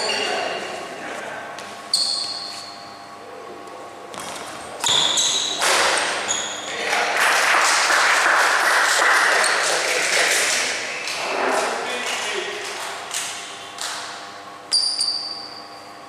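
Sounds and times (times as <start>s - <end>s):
shoe squeaks: 0.0s - 0.8s, 1.9s - 3.1s, 4.8s - 6.8s, 14.7s - 16.0s.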